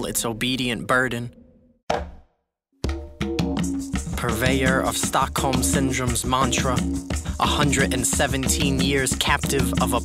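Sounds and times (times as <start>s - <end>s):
percussion hit: 2.8s - 4.2s
drums: 2.8s - 10.0s.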